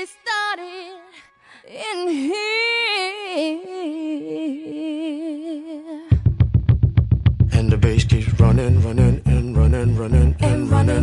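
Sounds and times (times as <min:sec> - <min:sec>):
person singing: 0:07.4 - 0:11.0.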